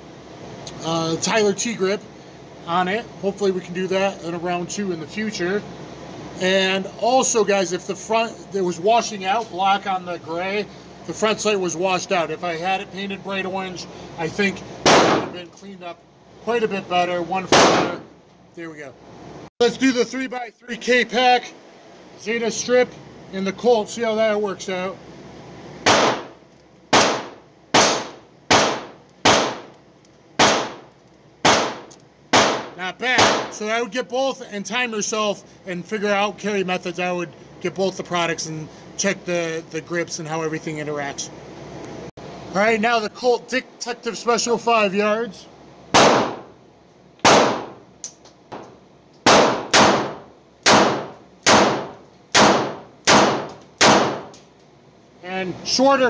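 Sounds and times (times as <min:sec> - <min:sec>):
gunshots with echo: 0:14.9 - 0:15.4, 0:17.5 - 0:18.0, 0:25.9 - 0:26.3, 0:26.9 - 0:29.7, 0:30.4 - 0:30.8, 0:31.4 - 0:33.6, 0:46.0 - 0:46.5, 0:47.3 - 0:47.8, 0:49.3 - 0:54.3
revolver shots with echo: 0:14.9 - 0:15.4, 0:17.5 - 0:18.0, 0:25.9 - 0:26.3, 0:27.0 - 0:29.7, 0:30.4 - 0:30.8, 0:46.0 - 0:46.5.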